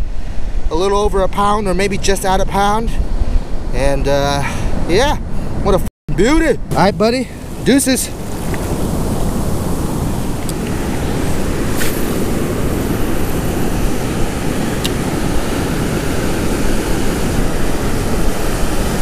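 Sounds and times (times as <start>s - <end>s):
wind rumbling on microphone: 0.0s - 19.0s
ocean surf washing: 6.2s - 19.0s.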